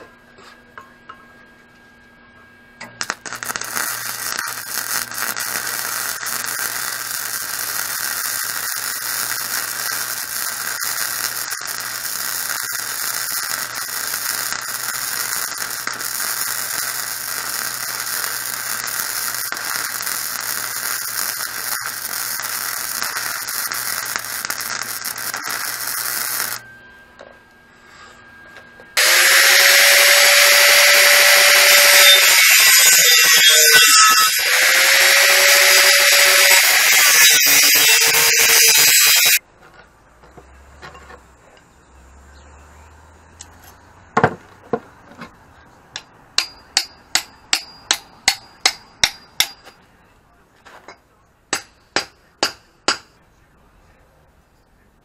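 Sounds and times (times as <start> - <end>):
low electrical hum: 0.0 - 29.0
welder arc crackling: 2.8 - 26.6, 29.0 - 39.4.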